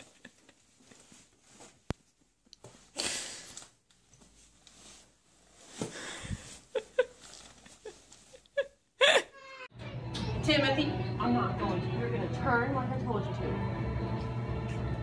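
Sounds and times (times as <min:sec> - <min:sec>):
fabric rustling: 0:00.0 - 0:03.0, 0:03.6 - 0:08.7.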